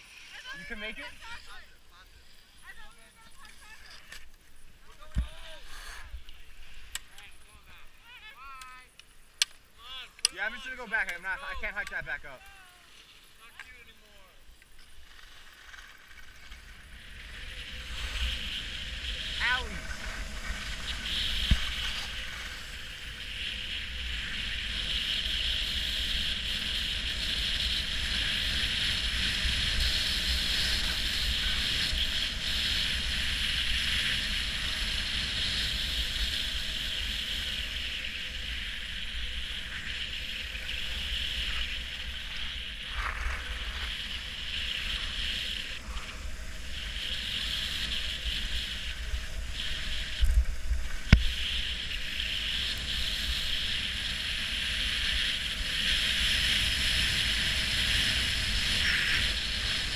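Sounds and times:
skis hissing over snow: 0.0 - 59.9
wind rumbling on microphone: 14.8 - 59.9.

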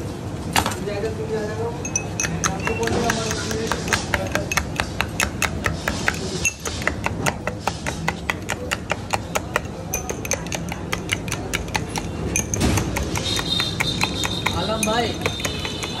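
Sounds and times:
spoon clinking against glass: 1.8 - 6.9, 8.5 - 16.0.

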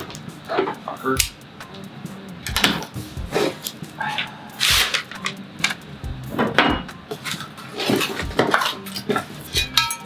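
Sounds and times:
metal parts clanking: 6.4 - 10.0
metallic ring: 9.5 - 10.0.

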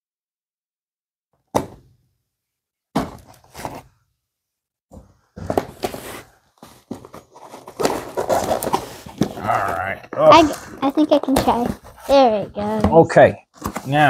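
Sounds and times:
cardboard and paper rustling: 3.0 - 3.9, 4.9 - 14.0
cardboard scraping: 3.1 - 3.9, 4.9 - 9.8, 10.4 - 14.0.

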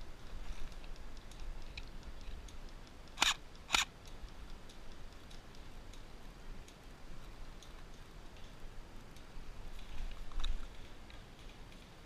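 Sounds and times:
faint scattered ticking: 0.0 - 12.0
sharp snaps: 0.8 - 6.1.

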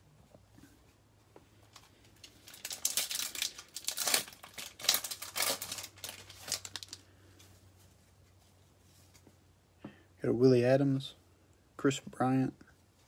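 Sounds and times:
foil wrapper crinkling and tearing: 1.7 - 7.1.

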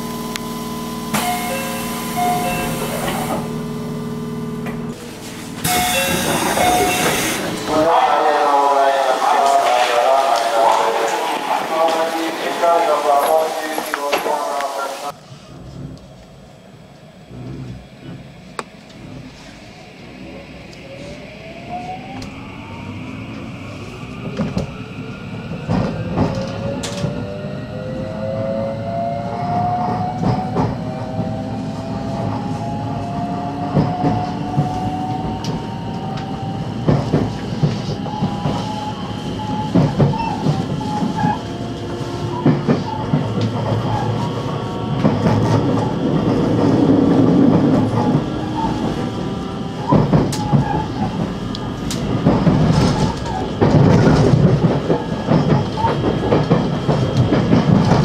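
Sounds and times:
electric train motor whine: 0.0 - 7.8
train running noise: 0.0 - 58.0
train wheels clicking on rail joints: 5.6 - 7.8, 33.7 - 44.4, 49.8 - 58.0.

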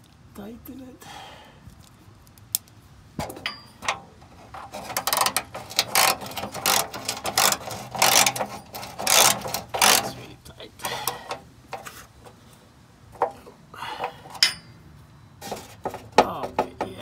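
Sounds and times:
hand ratchet clicking: 4.7 - 10.2.

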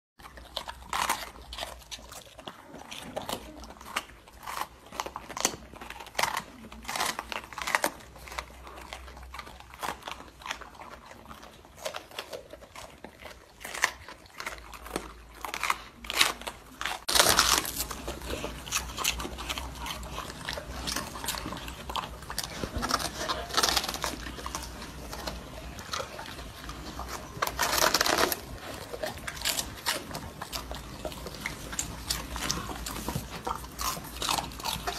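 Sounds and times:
dogs crunching vegetables: 0.2 - 34.9.

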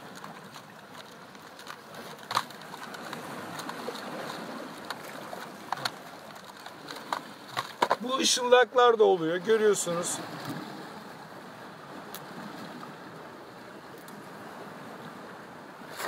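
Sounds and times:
sea water washing: 0.0 - 16.0
plastic tackle clicking and rattling: 0.1 - 8.1.

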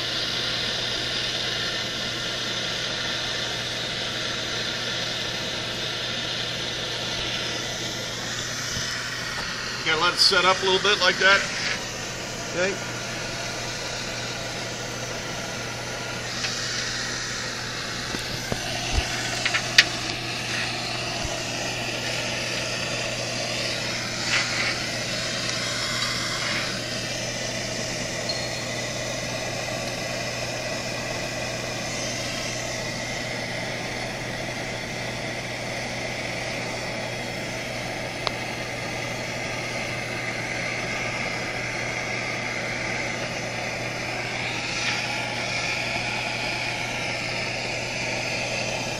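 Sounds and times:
gas torch hissing: 0.0 - 48.9
low hum: 10.5 - 33.3.

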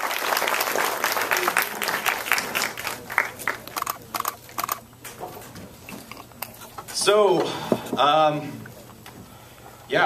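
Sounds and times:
audience applauding: 0.0 - 4.0.

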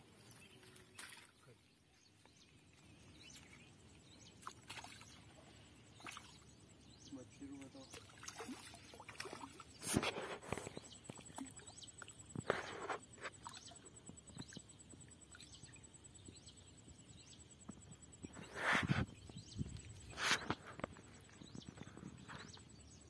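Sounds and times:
fish splashing in water: 7.9 - 10.1.

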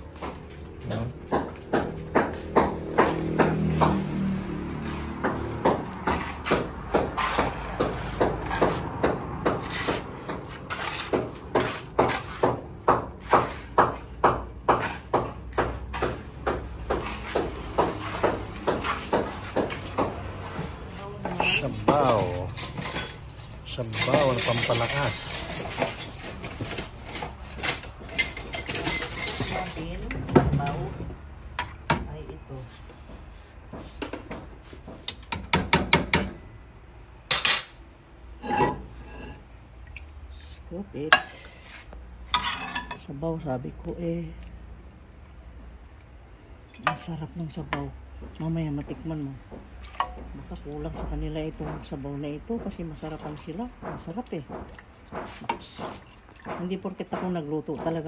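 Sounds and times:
metal ladles clinking on pot: 21.4 - 30.8, 42.3 - 43.1.

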